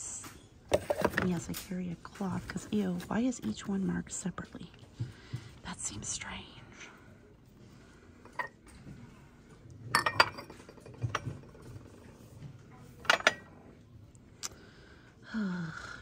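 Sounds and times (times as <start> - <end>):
ceramic cups clinking: 8.2 - 8.8, 9.9 - 12.0, 13.0 - 13.6.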